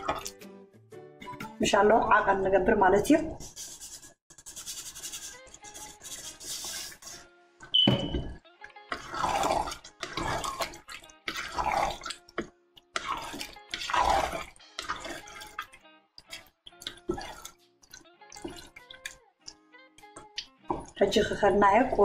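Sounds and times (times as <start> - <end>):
spatula stirring thick stew: 3.4 - 7.3, 8.9 - 17.6.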